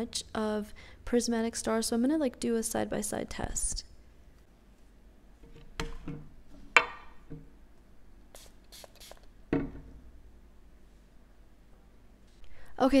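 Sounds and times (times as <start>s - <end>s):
bottle knocking on glass: 6.8s - 7.5s
spray bottle spritzes: 8.4s - 9.3s.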